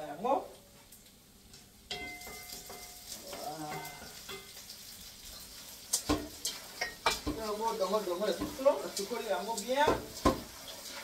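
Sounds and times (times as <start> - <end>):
pot knocking: 1.9 - 4.5, 6.0 - 7.6, 8.3 - 8.8, 9.8 - 10.6
metal pot clattering in sink: 1.9 - 4.7, 5.9 - 11.0.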